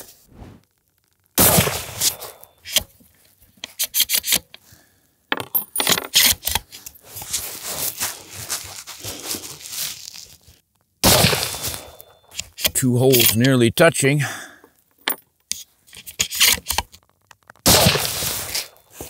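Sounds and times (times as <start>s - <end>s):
rifle shot: 1.4s - 2.3s, 11.0s - 12.0s, 17.7s - 18.7s.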